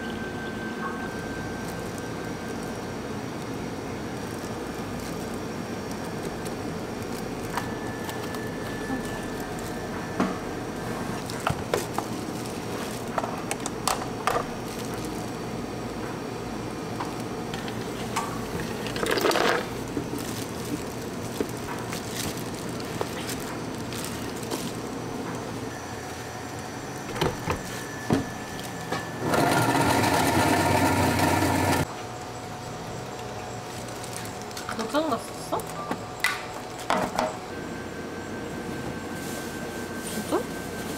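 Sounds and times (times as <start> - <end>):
steady room hum: 0.0 - 40.9
blender running at high speed: 29.2 - 31.8.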